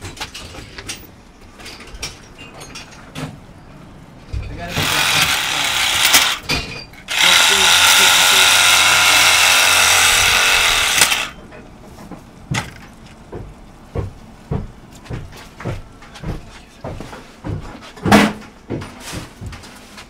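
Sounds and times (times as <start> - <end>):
power tool cutting pipe: 4.7 - 6.5, 7.1 - 11.4.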